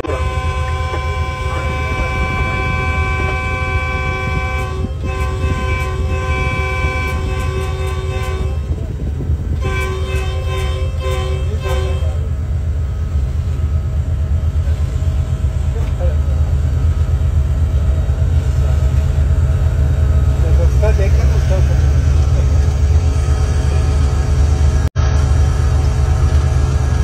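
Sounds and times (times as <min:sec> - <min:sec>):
locomotive air horn blasts: 0:00.0 - 0:12.3
locomotive low rumble: 0:00.0 - 0:27.0.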